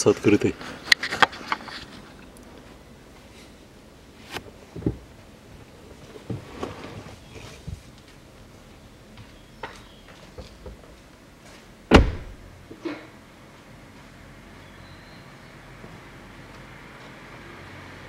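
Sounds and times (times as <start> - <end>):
faint knocks and rustling: 4.7 - 5.2, 5.9 - 8.2
sharp loud knock: 11.9 - 12.4.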